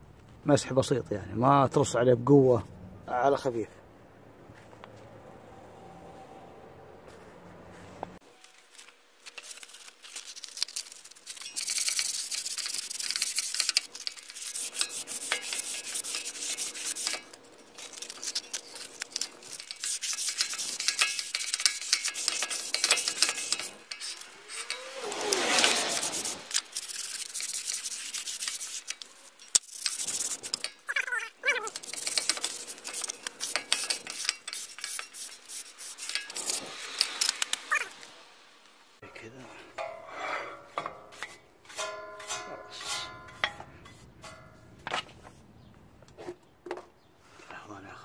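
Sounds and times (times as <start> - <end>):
sandpaper rubbing on metal disc: 9.3 - 38.2
brief wavering tone: 24.3 - 26.5.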